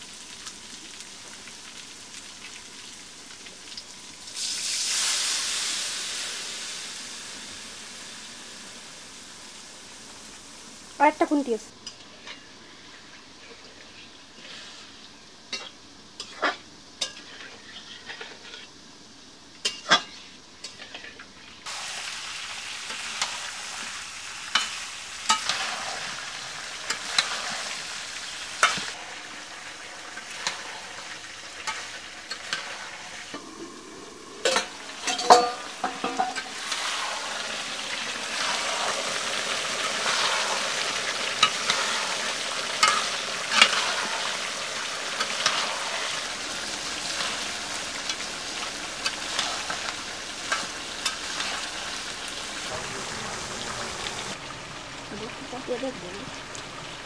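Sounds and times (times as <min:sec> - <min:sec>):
curry sizzling in a wok: 0:00.0 - 0:57.0
metal spatula scraping a pan: 0:12.2 - 0:18.8, 0:39.8 - 0:44.4.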